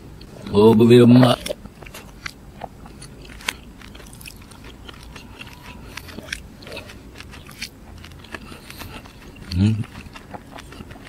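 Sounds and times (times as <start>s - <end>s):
person chewing: 1.2s - 11.0s.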